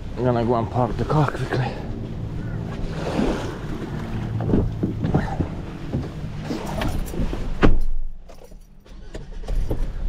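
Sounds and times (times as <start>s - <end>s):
wind buffeting microphone: 1.8s - 7.6s.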